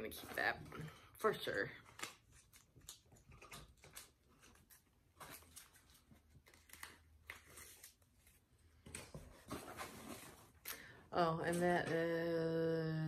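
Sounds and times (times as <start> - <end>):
packaged items rustling: 1.8 - 10.7.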